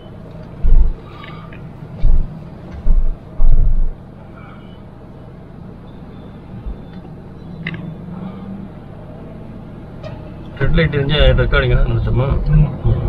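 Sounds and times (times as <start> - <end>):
car road and engine rumble: 0.0 - 13.0
loud low thump: 0.6 - 1.0, 2.0 - 4.0.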